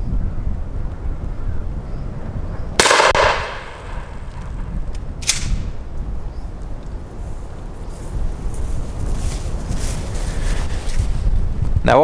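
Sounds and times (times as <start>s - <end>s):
wind rumbling on microphone: 0.0s - 12.0s
shotgun shot with ringing tail: 2.8s - 4.6s.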